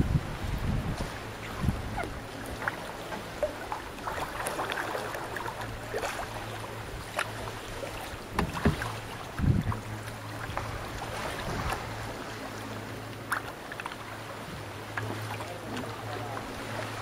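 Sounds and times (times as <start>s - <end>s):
water sloshing around a canoe: 0.0s - 17.0s
thumps on canoe: 8.3s - 9.8s.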